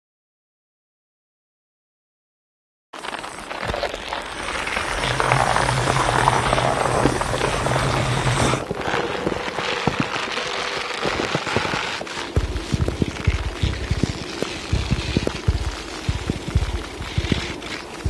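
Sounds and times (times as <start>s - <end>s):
dense crackling: 3.0s - 18.0s
scattered clicks: 3.2s - 18.0s
low hum: 12.1s - 18.0s
low thumps: 12.3s - 18.0s.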